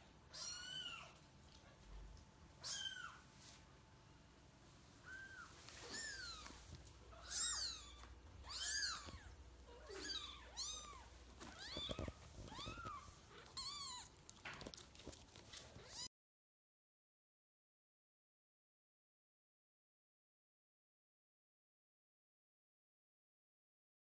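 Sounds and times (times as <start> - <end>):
kittens mewing: 5.0 - 14.6.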